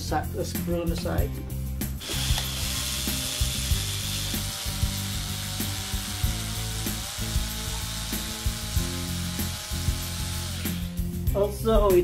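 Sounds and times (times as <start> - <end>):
electric screwdriver clicking: 2.0 - 10.8.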